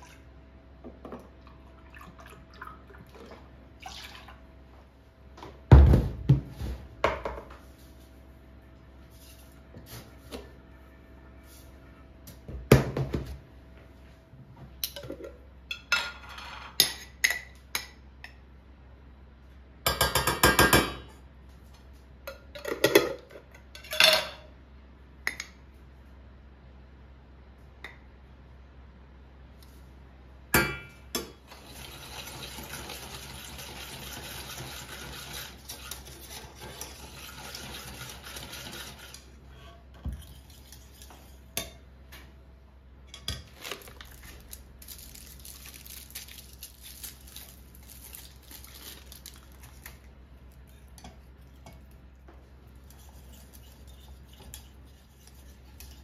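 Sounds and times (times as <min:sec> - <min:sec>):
spoon stirring in a saucepan: 0:31.2 - 0:41.9, 0:50.4 - 0:56.0.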